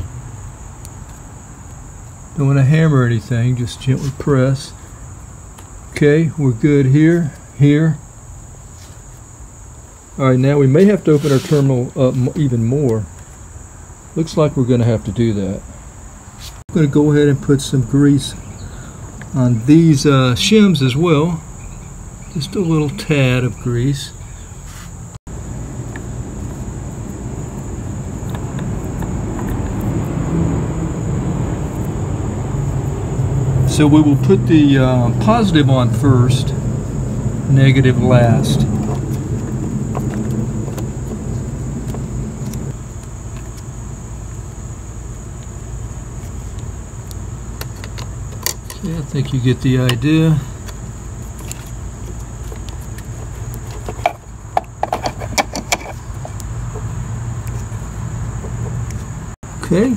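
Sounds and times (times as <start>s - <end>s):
faint high whine: 0.0s - 56.6s
steady low hum: 0.0s - 59.9s
low engine-like rumble: 17.1s - 59.9s.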